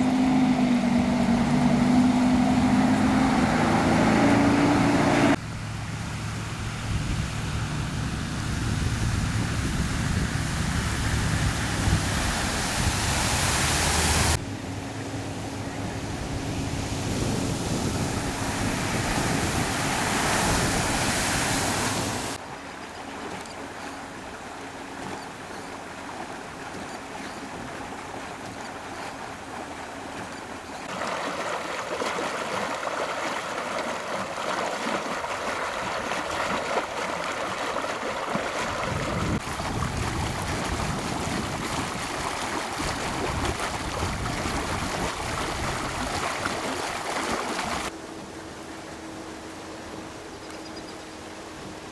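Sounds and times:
floodwater rushing and churning: 0.0 - 51.9
water spray hissing: 12.2 - 14.4.

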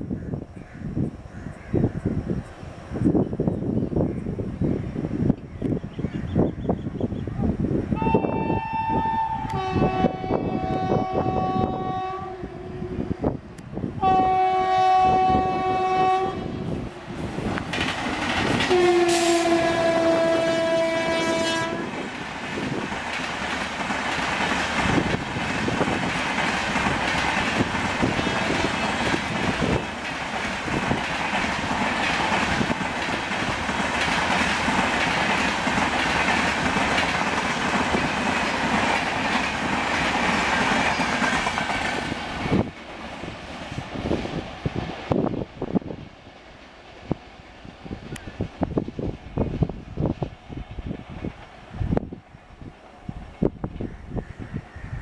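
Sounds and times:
locomotive horn blasts: 8.0 - 13.2, 14.0 - 16.7, 18.7 - 22.0
train wheels clattering: 17.3 - 44.1.

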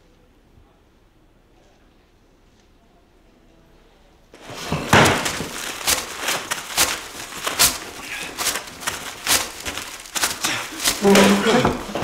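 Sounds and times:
objects crashing and clattering: 4.4 - 12.0.

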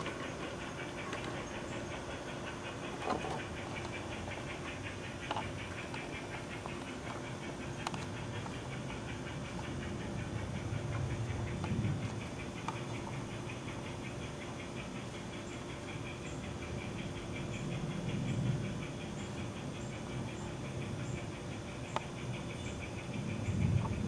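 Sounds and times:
model steam locomotive chuffing: 0.0 - 24.0
low rumble: 7.6 - 14.0.

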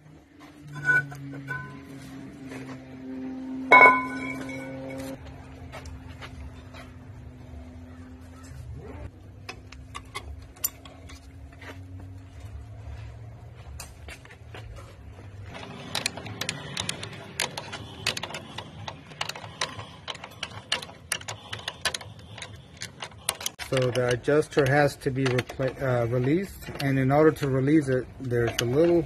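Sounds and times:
metal clicking and scraping: 9.3 - 11.7, 14.7 - 29.0.

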